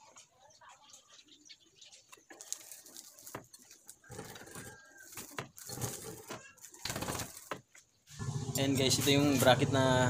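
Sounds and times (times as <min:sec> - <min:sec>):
plastic and wire clicks and rustles: 0:02.1 - 0:07.8.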